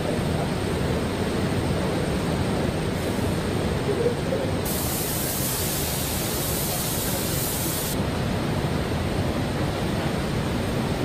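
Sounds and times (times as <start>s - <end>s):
cleaning booth rushing noise: 4.6s - 8.0s
high hiss: 4.6s - 8.0s.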